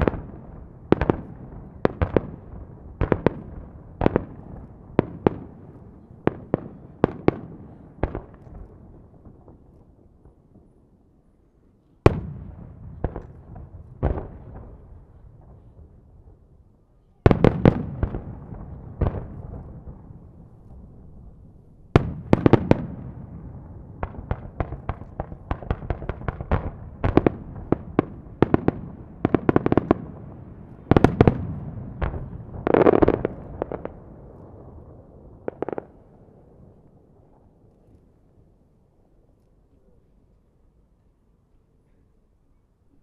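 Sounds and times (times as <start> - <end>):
firework crackling: 17.3 - 37.8
firework shells booming: 21.9 - 36.7
firework cracks: 21.9 - 36.8.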